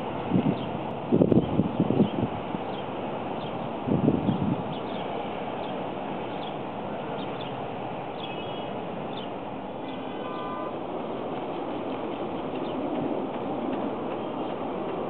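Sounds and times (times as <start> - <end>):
distant city traffic hum: 0.0 - 15.0
bird chirps: 8.2 - 10.7.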